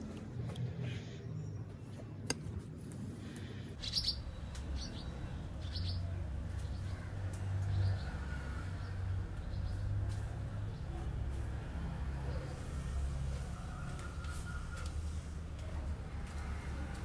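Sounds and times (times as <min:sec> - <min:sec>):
small birds chirping: 0:03.2 - 0:11.4.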